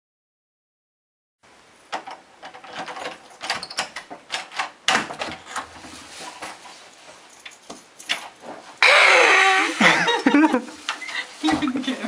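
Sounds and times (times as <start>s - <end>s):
door lock and knob rattling: 2.0s - 5.7s.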